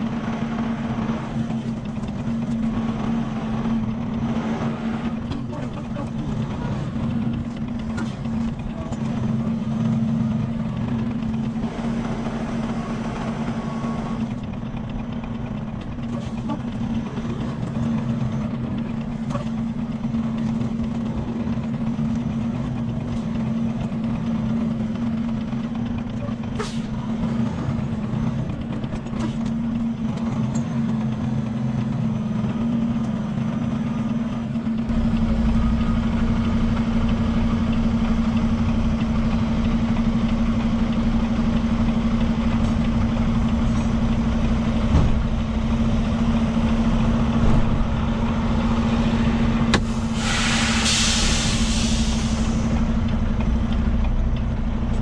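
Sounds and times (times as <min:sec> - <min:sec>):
diesel truck engine idling: 0:00.0 - 0:55.0
deep rumble: 0:34.3 - 0:55.0.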